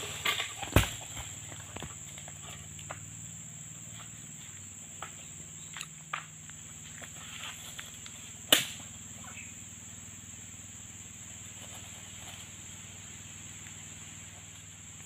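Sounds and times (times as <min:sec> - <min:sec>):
rustles of dry palm fronds: 0:00.0 - 0:02.9, 0:06.8 - 0:09.5, 0:11.3 - 0:15.0
high insect drone: 0:00.0 - 0:15.0.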